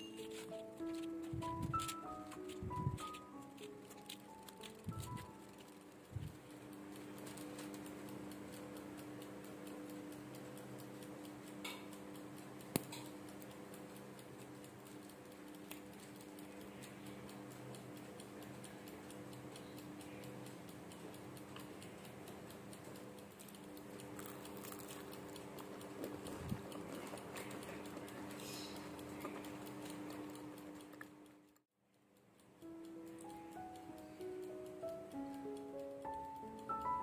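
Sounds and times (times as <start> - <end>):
sharp click: 0.0 - 18.2
fast even ticking: 0.0 - 37.0
steady low hum: 0.0 - 37.0.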